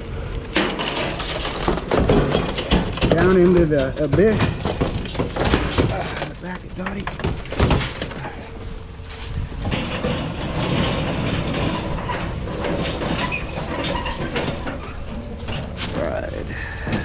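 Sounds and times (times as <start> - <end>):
vehicle rumble: 0.0 - 17.0
item clattering into vehicle: 0.5 - 8.8.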